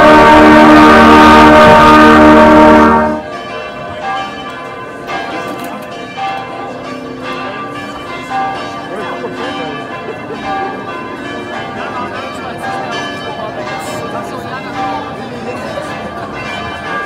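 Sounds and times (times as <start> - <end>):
brass band chord: 0.0 - 3.2
church bells ringing: 0.0 - 17.0
crowd chatter: 0.0 - 17.0.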